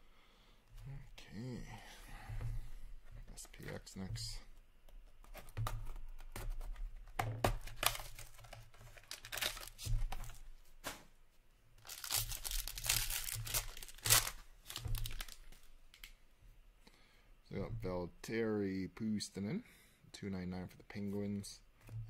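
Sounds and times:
cards rustling: 0:07.4 - 0:11.0, 0:11.8 - 0:16.2
foil wrapper tearing and crinkling: 0:07.7 - 0:10.4, 0:11.8 - 0:16.1.

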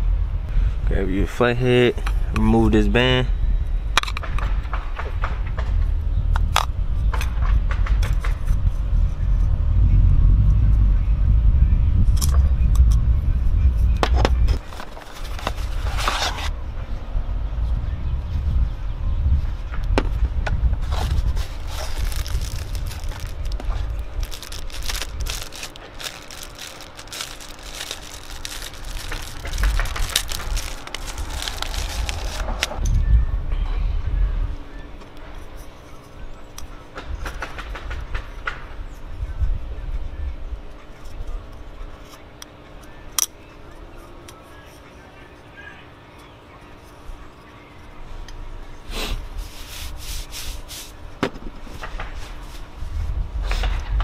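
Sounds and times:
low steady rumble: 0:00.0 - 0:01.3, 0:01.9 - 0:41.9
cardboard box opening: 0:14.6 - 0:16.5, 0:20.8 - 0:32.8
plastic wrapping crinkling: 0:20.9 - 0:32.8.

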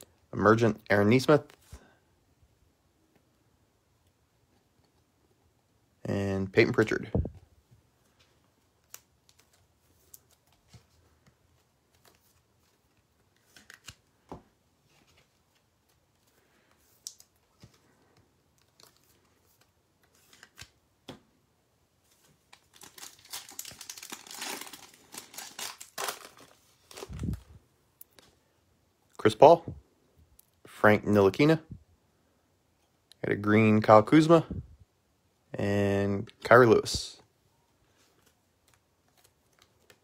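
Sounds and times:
foil wrapper tearing and crinkling: 0:22.6 - 0:27.3.

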